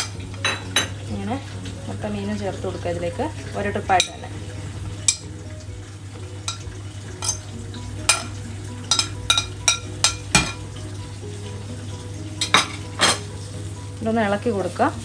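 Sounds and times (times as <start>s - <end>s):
frying pan sizzling: 0.0s - 15.0s
spoon scraping and clinking on plate: 6.5s - 10.6s.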